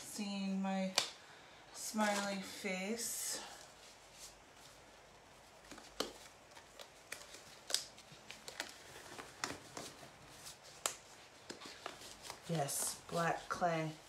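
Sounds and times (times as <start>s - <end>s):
fabric rustling: 3.4s - 14.0s.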